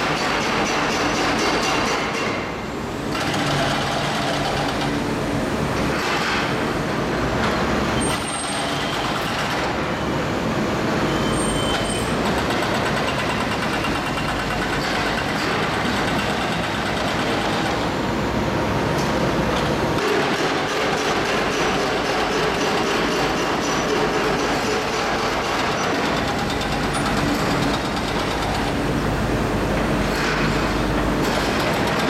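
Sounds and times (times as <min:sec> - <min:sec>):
excavator engine roaring: 0:08.7 - 0:32.0.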